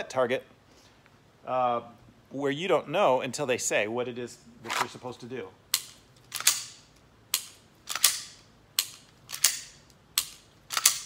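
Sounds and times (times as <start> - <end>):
pistol slide racking: 5.8 - 6.8, 7.4 - 11.0.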